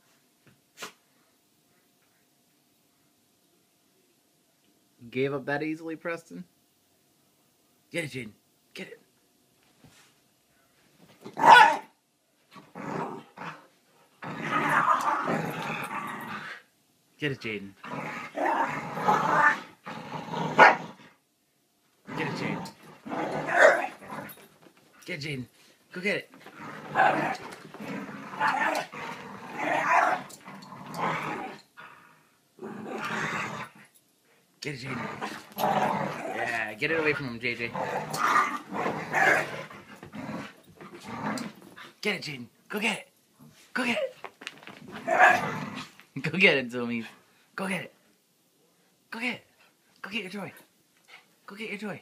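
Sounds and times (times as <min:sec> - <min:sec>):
dog barking: 0:11.4 - 0:11.9
dogs play-growling: 0:12.5 - 0:16.6, 0:17.8 - 0:21.2, 0:22.0 - 0:25.0, 0:26.3 - 0:34.0, 0:34.8 - 0:42.0, 0:43.4 - 0:46.1.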